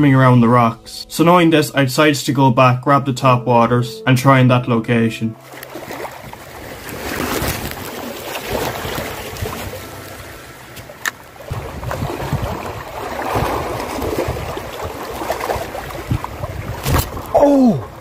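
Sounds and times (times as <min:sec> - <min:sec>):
waves lapping over rocks: 0:05.4 - 0:17.3
wind rumbling on microphone: 0:05.7 - 0:18.0.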